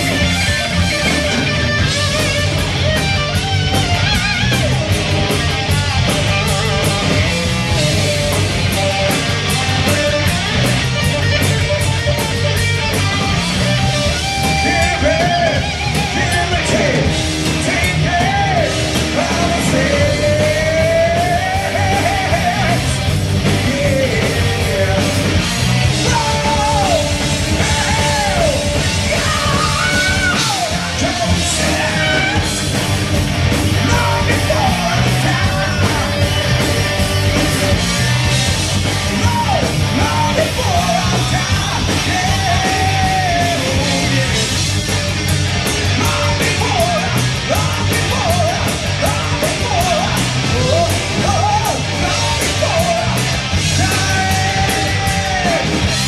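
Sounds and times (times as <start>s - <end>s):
heavy metal band playing live: 0.0s - 56.0s
man singing in a shouted style: 14.5s - 22.9s, 26.0s - 32.6s, 33.8s - 36.6s, 39.2s - 44.4s, 45.9s - 55.8s.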